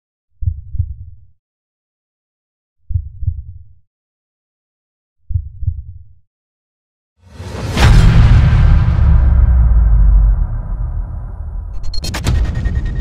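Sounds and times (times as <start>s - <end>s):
heartbeat double thumps: 0.4s - 1.2s, 2.9s - 3.7s, 5.3s - 6.1s.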